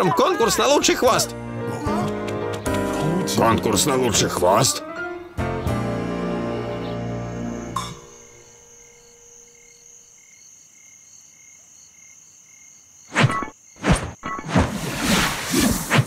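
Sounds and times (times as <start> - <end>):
crickets chirping: 6.0 - 15.9.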